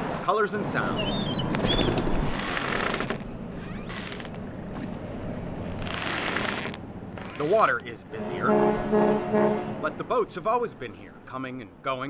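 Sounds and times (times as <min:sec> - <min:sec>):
city rumbling noise: 0:00.0 - 0:12.0
bird chirps: 0:00.8 - 0:02.0.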